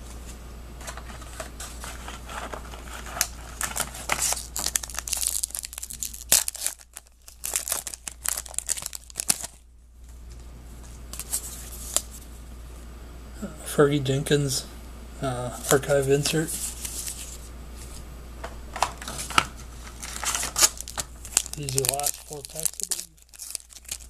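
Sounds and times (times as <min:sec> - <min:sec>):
cards rustling: 0:00.8 - 0:09.6, 0:10.8 - 0:12.2, 0:15.6 - 0:18.0, 0:18.8 - 0:24.0
plastic wrapper crinkling and tearing: 0:01.0 - 0:09.6, 0:11.1 - 0:12.2, 0:16.5 - 0:17.4, 0:18.8 - 0:24.0.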